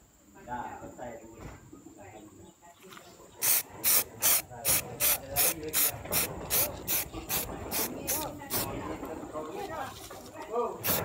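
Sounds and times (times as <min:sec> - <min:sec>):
spray can rattling when shaken: 0:03.4 - 0:08.8.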